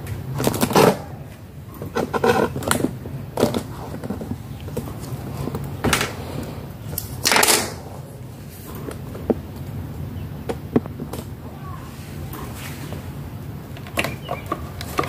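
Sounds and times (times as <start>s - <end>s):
steady low hum: 0.0s - 15.0s
motor parts clattering on workbench: 7.2s - 7.8s.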